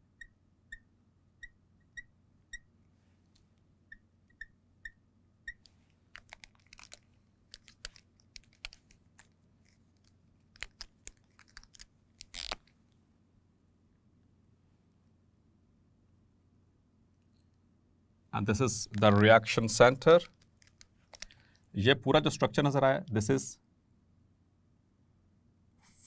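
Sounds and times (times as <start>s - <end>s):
marker squeaking on glass: 0.0s - 2.7s, 3.9s - 5.7s
marker taps and scratches: 5.5s - 9.8s.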